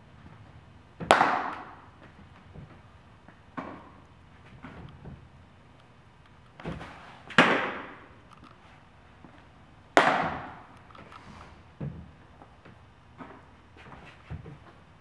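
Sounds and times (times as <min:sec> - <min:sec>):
baseball smacking into leather glove: 0:01.0 - 0:02.2, 0:10.0 - 0:10.7.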